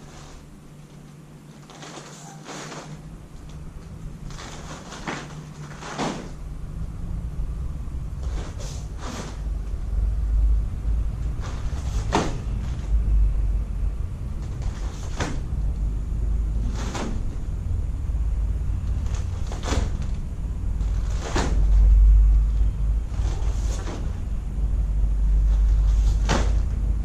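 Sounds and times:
uniform fabric snapping: 0:00.1 - 0:06.4, 0:11.3 - 0:12.9, 0:14.4 - 0:15.5, 0:16.6 - 0:17.5, 0:18.9 - 0:22.0, 0:25.5 - 0:26.8
low rumble: 0:02.9 - 0:27.0.

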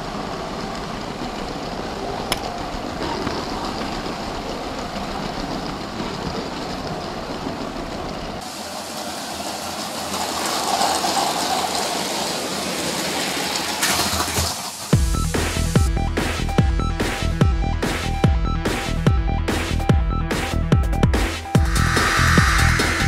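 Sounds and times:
wheels rattling over plastic track: 0:00.0 - 0:15.0.

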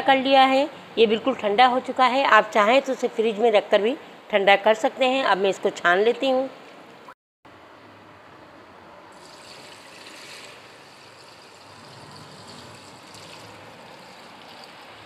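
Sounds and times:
liquid pouring through strainer: 0:09.2 - 0:15.0.

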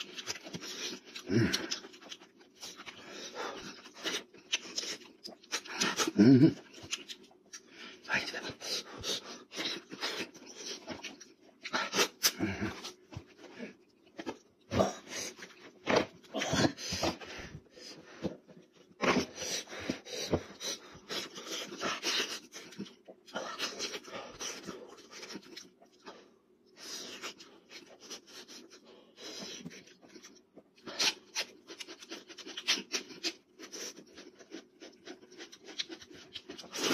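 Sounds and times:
wet chewing and lip smacking: 0:00.0 - 0:07.7, 0:29.6 - 0:36.9.

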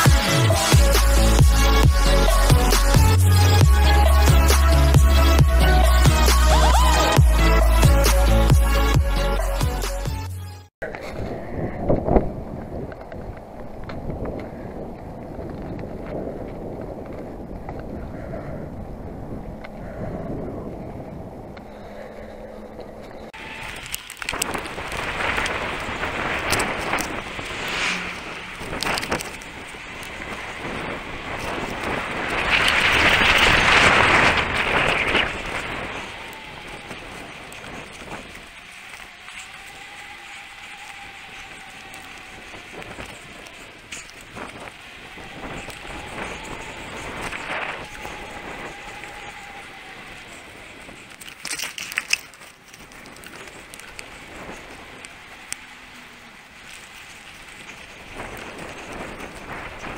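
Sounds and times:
bike tyres rolling on tarmac: 0:10.8 - 0:59.9
wind and rubbing on microphone: 0:10.8 - 0:59.9
bike rattling clicks: 0:22.8 - 0:59.9.

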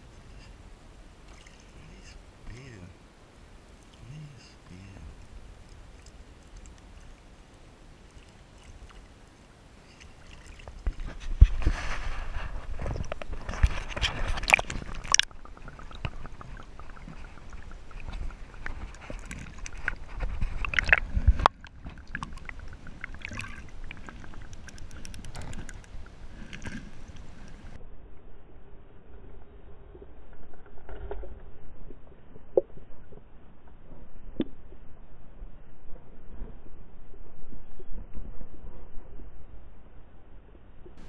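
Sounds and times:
water splashing and sloshing: 0:00.0 - 0:27.8.

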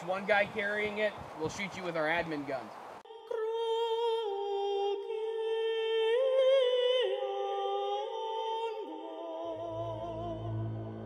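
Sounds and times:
wordless singing of long notes: 0:02.9 - 0:11.0.

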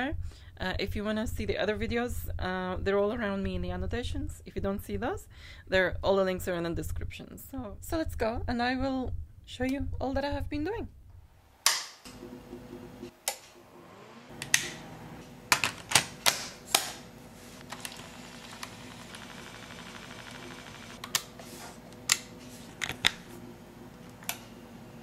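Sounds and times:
low steady hum: 0:00.0 - 0:13.7.

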